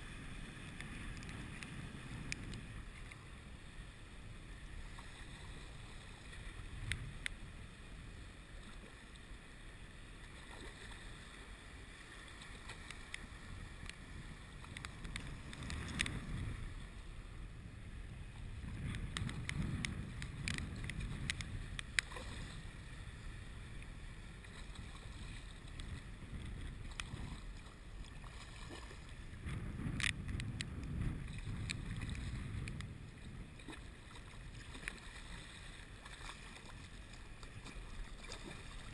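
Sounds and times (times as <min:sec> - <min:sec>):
wind buffeting microphone: 0:00.0 - 0:03.2, 0:13.4 - 0:38.9.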